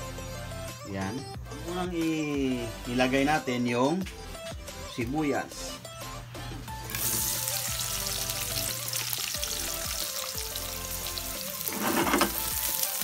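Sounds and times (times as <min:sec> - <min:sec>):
onion sizzling in oil: 0:06.9 - 0:13.0.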